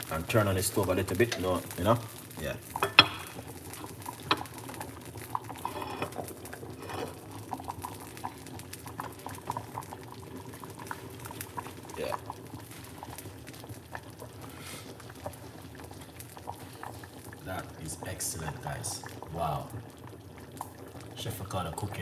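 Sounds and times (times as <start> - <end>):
soup bubbling in a pot: 0.0 - 22.0
metal lid clinking: 5.6 - 6.2, 6.8 - 7.2.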